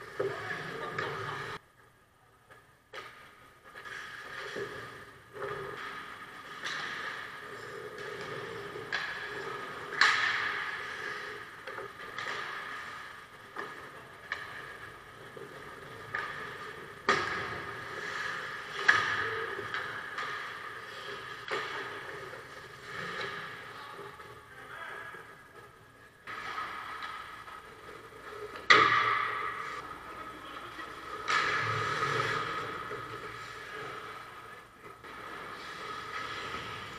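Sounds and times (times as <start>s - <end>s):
skates scraping on ice: 0.0s - 1.6s, 3.0s - 36.9s
hockey sticks clacking on puck: 2.5s - 36.9s
puck hitting the boards: 8.0s - 23.8s, 26.2s - 29.8s.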